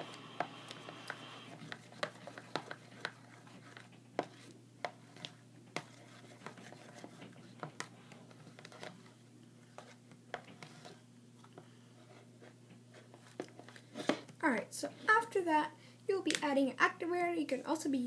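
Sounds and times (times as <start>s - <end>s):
low background hum: 0.0s - 18.0s.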